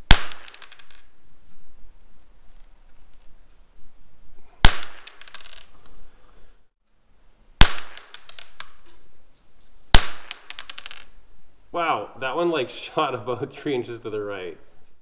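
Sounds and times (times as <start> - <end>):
rifle shots with echo: 0.1 - 0.7, 4.6 - 5.3.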